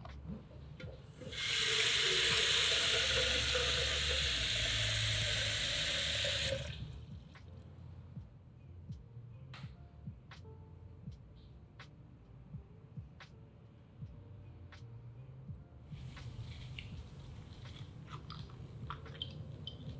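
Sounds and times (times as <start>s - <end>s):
rising tone of filling can: 1.2s - 6.8s
tap water running into a can: 1.2s - 6.8s.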